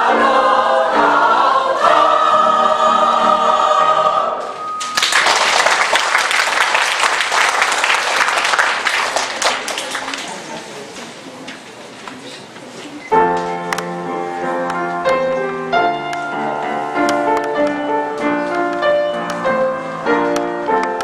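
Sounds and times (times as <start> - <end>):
mixed choir singing: 0.0 - 4.7
audience applauding: 4.8 - 10.9.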